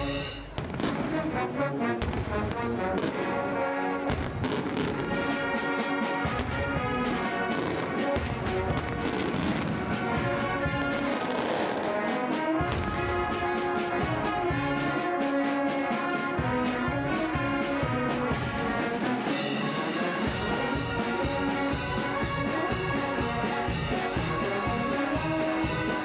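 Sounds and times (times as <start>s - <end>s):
sharp percussive hits: 0.0s - 1.1s
brass band music: 0.0s - 26.0s.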